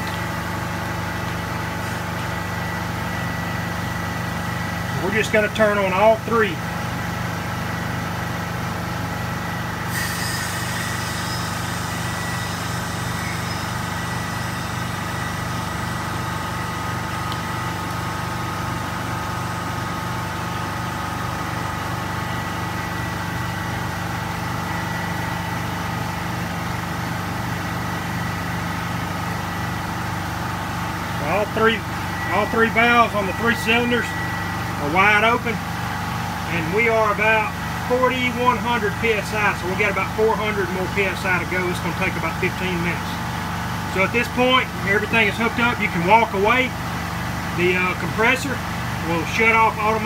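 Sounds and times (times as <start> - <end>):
air compressor running: 0.0 - 50.0
air hissing: 9.9 - 13.7.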